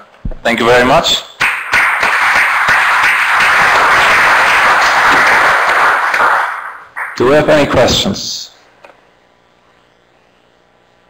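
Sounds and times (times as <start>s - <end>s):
audience applauding: 1.4s - 7.3s.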